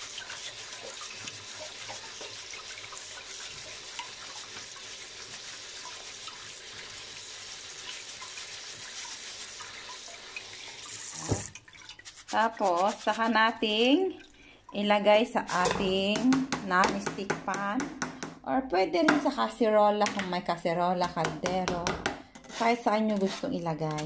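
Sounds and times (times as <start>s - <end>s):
tap water running: 0.0s - 18.4s.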